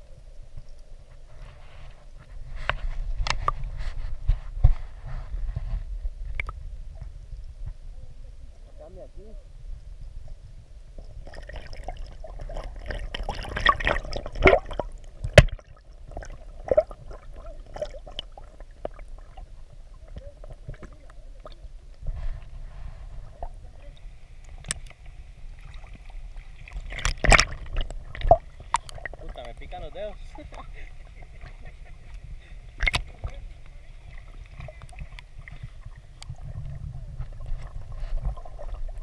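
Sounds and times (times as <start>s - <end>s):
underwater clicks and knocks: 2.6s - 4.8s, 6.3s - 7.8s, 12.4s - 19.0s, 24.5s - 25.0s, 26.7s - 29.7s, 32.8s - 39.0s
muffled underwater gurgling: 11.1s - 39.0s.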